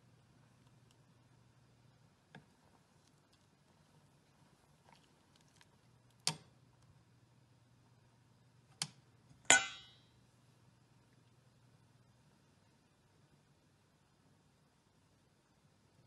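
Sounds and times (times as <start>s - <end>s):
faint low hum: 0.0s - 16.0s
chopsticks knocking on metal pot: 9.5s - 10.0s.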